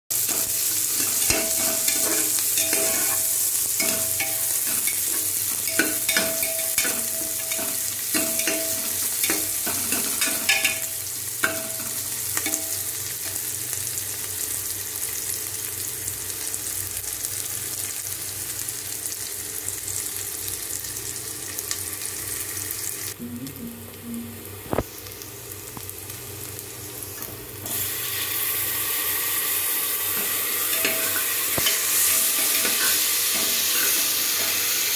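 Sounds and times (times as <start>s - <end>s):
onions sizzling in hot oil: 0.1s - 23.2s, 24.6s - 34.9s
ladle scraping and clinking pot: 0.3s - 12.7s.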